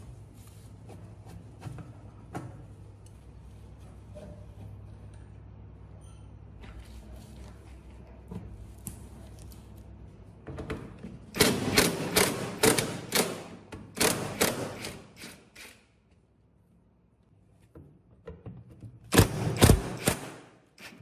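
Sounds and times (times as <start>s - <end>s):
impact driver hammering: 11.4s - 15.4s, 19.1s - 21.0s.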